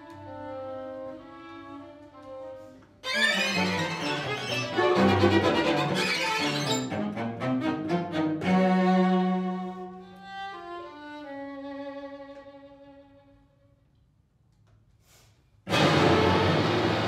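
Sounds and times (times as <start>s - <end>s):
string quartet playing: 0.0s - 13.4s.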